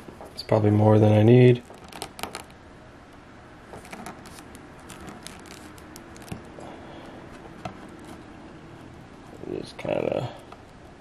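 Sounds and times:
plastic toy clicking and rubbing: 0:01.6 - 0:02.6, 0:03.8 - 0:06.5.

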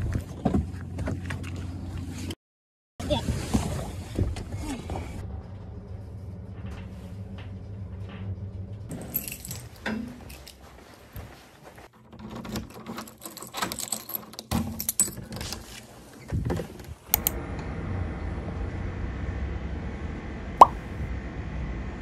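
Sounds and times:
low rumble with faint hum: 0:03.4 - 0:11.5.

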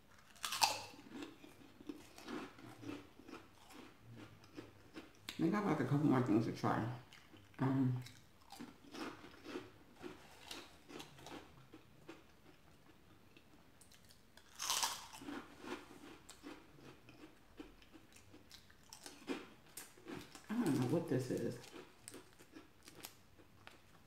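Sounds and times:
soft chewing: 0:00.1 - 0:05.4, 0:07.0 - 0:24.0
crunchy snack bite: 0:00.2 - 0:03.9, 0:13.9 - 0:20.9.

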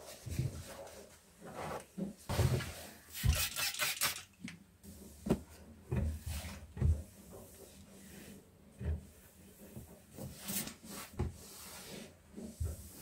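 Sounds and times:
folded clothes rustling: 0:05.1 - 0:08.6.

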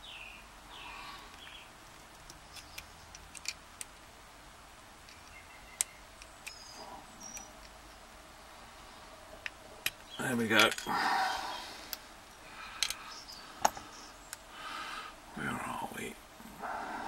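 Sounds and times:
metallic clicks and scrapes: 0:01.2 - 0:04.0.

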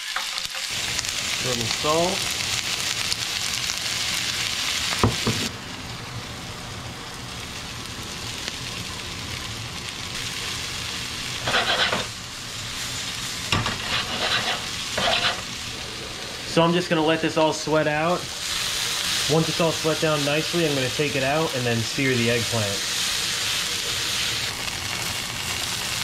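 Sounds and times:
vegetables sizzling in frying pan: 0:00.0 - 0:26.0
spatula scraping pan: 0:11.4 - 0:12.2, 0:13.5 - 0:15.5.

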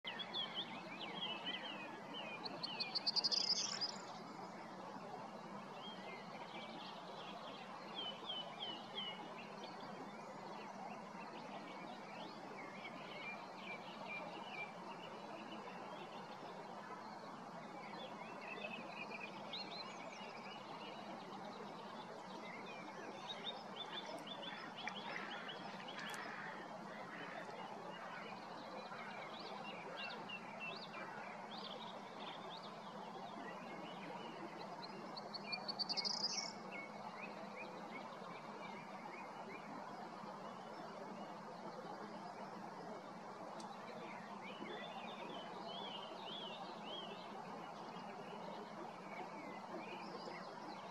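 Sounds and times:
small birds chirping: 0:18.1 - 0:39.7.

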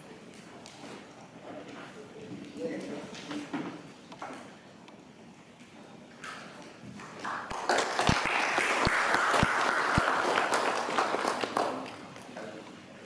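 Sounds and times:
audience applauding: 0:07.0 - 0:12.1.

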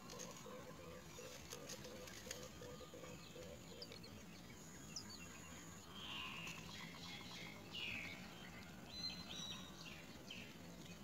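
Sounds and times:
rustling and clicking in nest: 0:00.0 - 0:04.0.

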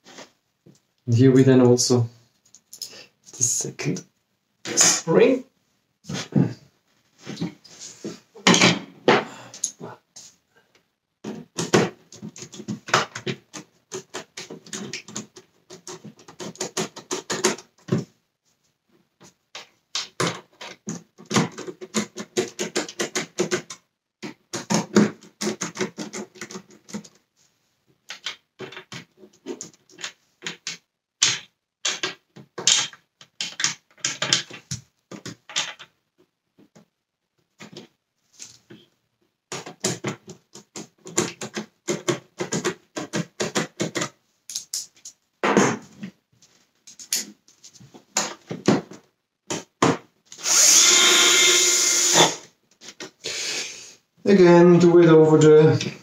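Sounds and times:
plastic parts being handled: 0:27.9 - 0:50.0.

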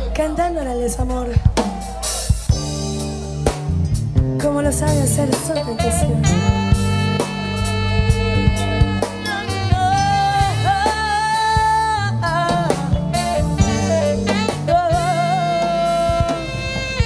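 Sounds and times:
salsa band playing: 0:01.5 - 0:17.0
woman singing with vibrato: 0:04.4 - 0:06.8, 0:09.0 - 0:16.8
percussion section: 0:05.8 - 0:12.0, 0:12.6 - 0:17.0.

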